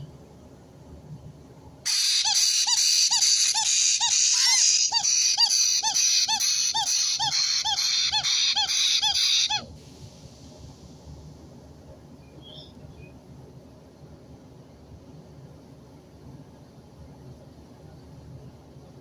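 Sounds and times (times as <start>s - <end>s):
parrot chick begging calls: 1.9s - 9.7s.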